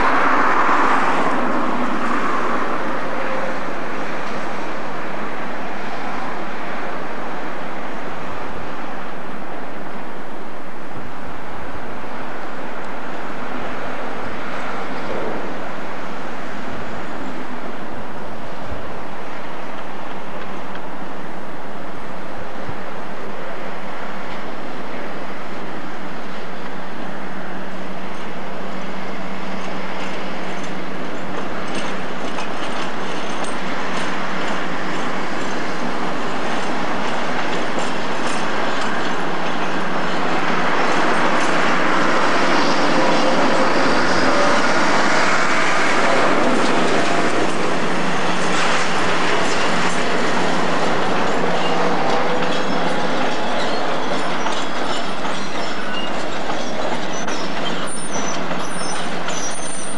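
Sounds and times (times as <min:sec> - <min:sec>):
diesel locomotive engine: 0:00.0 - 0:59.9
train wheels on rails: 0:00.0 - 0:59.9
faint wheel squeal: 0:51.6 - 0:59.9.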